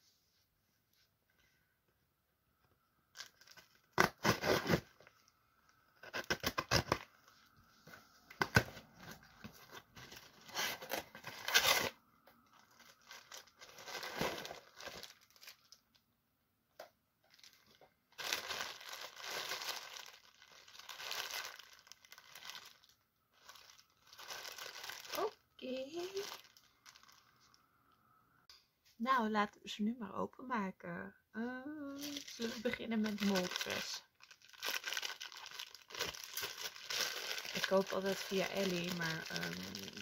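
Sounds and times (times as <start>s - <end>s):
plastic packaging crinkling: 3.1s - 5.4s, 8.3s - 16.0s, 17.2s - 27.6s, 32.0s - 40.0s
packing tape tearing: 3.2s - 5.0s, 6.0s - 7.1s, 10.4s - 12.0s.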